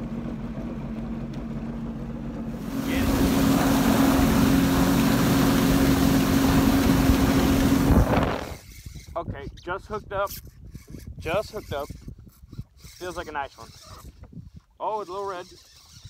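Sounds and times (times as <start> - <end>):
jet ski engine: 0.0 - 8.7
water spray hiss: 2.6 - 8.2
wind rush: 2.6 - 9.2.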